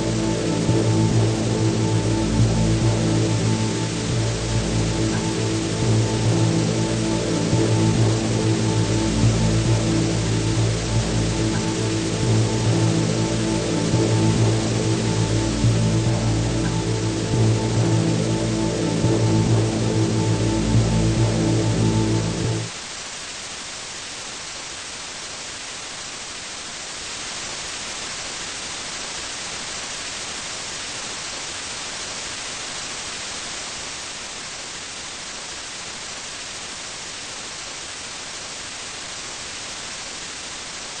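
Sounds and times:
static hiss: 0.0s - 41.0s.

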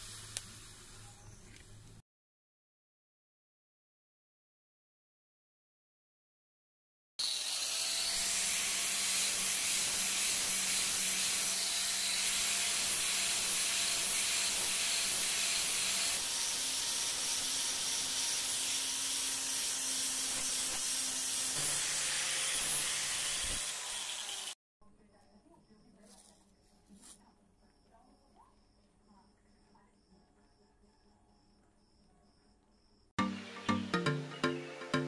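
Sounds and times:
angle grinder grinding steel: 7.2s - 24.6s.

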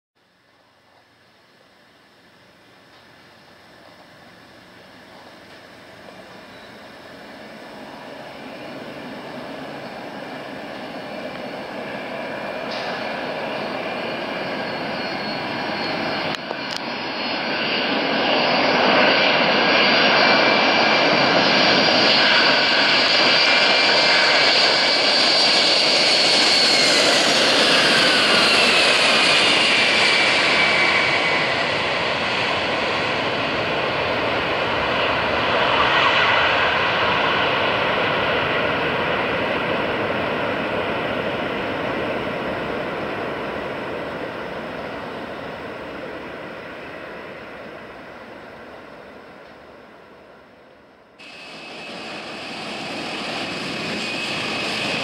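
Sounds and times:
high engine whine: 0.2s - 55.0s
jet engines roaring: 2.3s - 50.2s, 51.2s - 55.0s.

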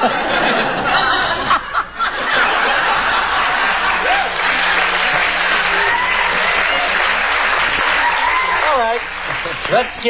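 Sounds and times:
studio audience applauding: 2.4s - 10.0s.

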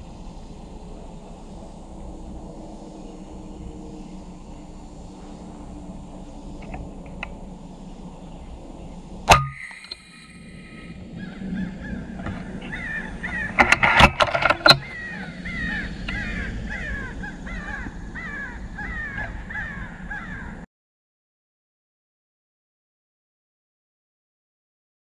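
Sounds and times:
air rifle shot: 9.3s - 10.4s
crow cawing: 9.4s - 20.7s.

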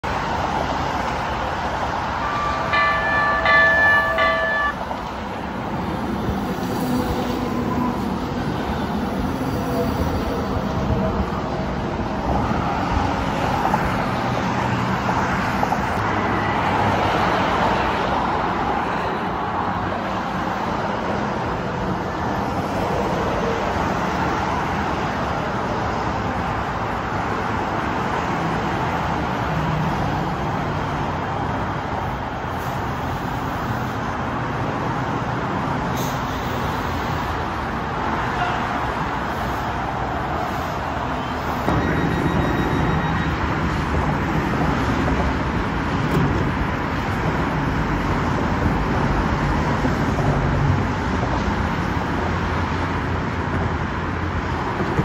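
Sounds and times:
freeway traffic: 0.0s - 55.0s
train wheels rumbling on rails: 0.4s - 55.0s
train horn blasts: 2.2s - 4.9s.

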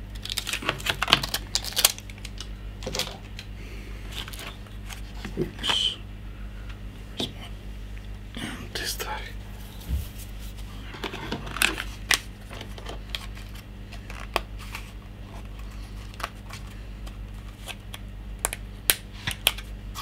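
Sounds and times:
steady low hum: 0.0s - 20.0s
fingers clicking and rustling tape: 0.1s - 3.5s.

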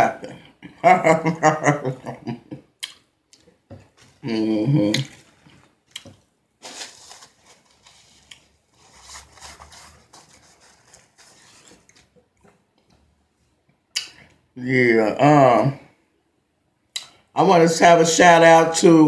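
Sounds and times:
food and napkin rustling: 3.7s - 4.3s, 5.0s - 12.8s.

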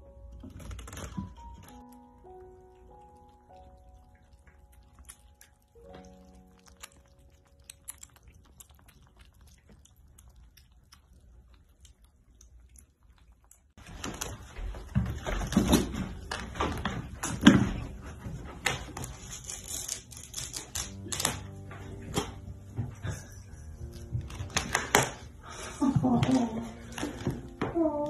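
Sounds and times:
kittens chewing and lapping: 0.2s - 28.0s
claws scratching fabric curtain: 19.0s - 21.0s.

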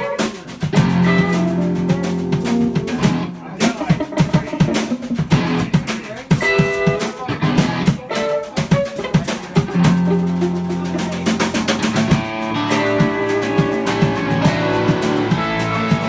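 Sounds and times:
drum kit: 0.0s - 16.0s
electric guitar playing: 0.0s - 16.0s.

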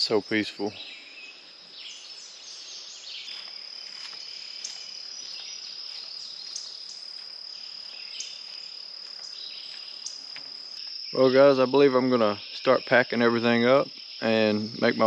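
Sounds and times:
birds chirping: 0.0s - 15.0s
insects droning: 0.0s - 15.0s.

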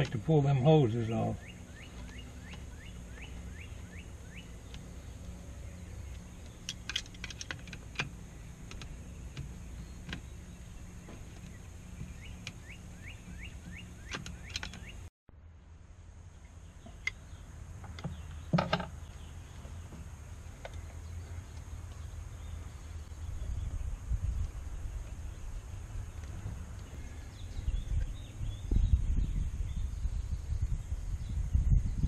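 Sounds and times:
bird chirping: 0.0s - 15.1s, 16.2s - 32.0s
screwdriver and hose fittings clicking: 14.1s - 14.9s.

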